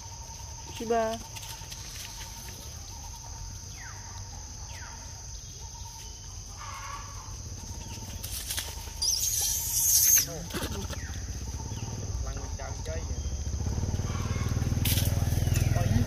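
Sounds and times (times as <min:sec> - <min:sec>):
high-pitched insect drone: 0:05.6 - 0:16.0
loud high hissing: 0:09.1 - 0:10.5.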